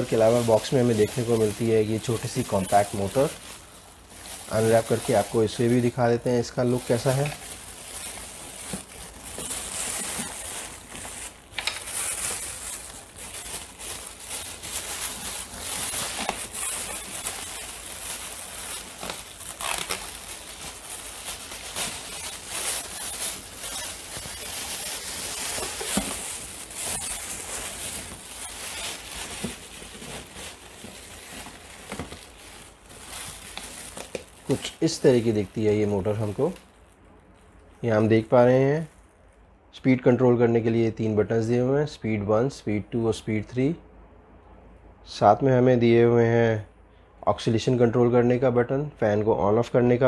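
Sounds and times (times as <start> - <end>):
plastic bag crinkling: 0.0 - 38.0.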